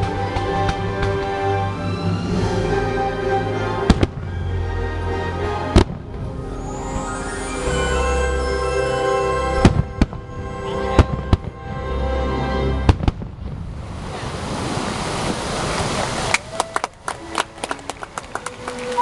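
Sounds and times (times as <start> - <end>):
music with long chords: 0.0 - 13.9, 17.1 - 19.0
fireworks booming: 12.8 - 13.8.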